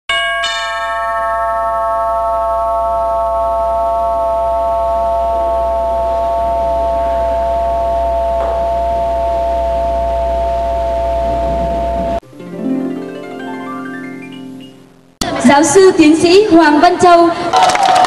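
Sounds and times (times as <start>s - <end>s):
low steady hum: 2.0s - 13.1s
synthesizer chord held: 2.1s - 15.2s.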